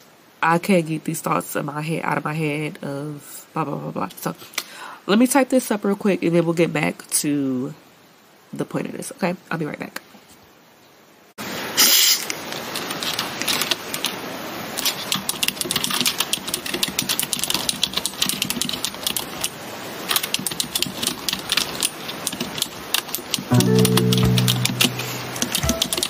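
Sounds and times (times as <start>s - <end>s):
fast typing on a keyboard: 14.8s - 26.0s
music: 23.5s - 26.0s.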